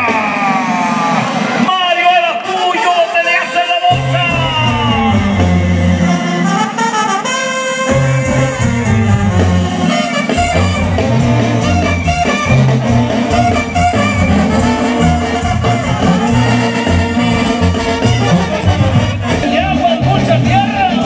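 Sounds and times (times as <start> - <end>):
brass band music: 0.0 - 21.0.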